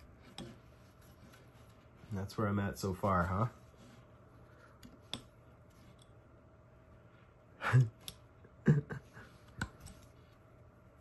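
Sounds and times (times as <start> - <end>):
knife carving wood: 0.0 - 2.1.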